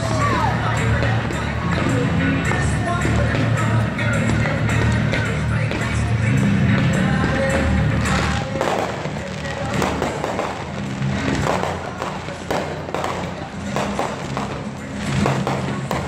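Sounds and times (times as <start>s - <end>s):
fireworks bangs and crackling: 0.0s - 16.0s
music: 0.0s - 16.0s.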